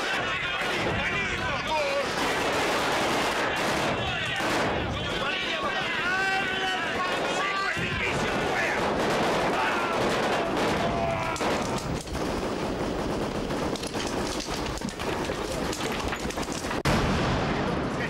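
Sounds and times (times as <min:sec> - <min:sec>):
people shouting: 0:00.0 - 0:12.0
rapid automatic gunfire: 0:00.0 - 0:16.9.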